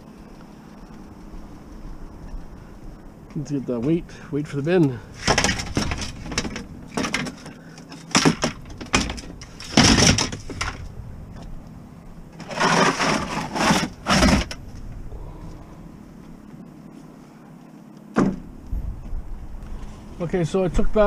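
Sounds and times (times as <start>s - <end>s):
plastic bin scraping on metal floor: 12.4s - 14.6s.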